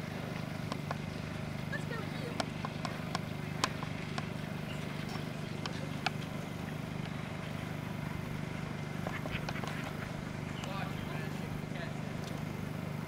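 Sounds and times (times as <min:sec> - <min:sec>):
low motor hum: 0:00.0 - 0:13.0.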